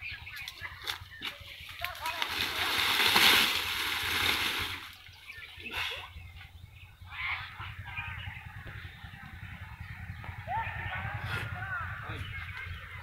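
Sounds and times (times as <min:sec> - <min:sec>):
dry leaves rustling and crackling: 0:00.4 - 0:05.1.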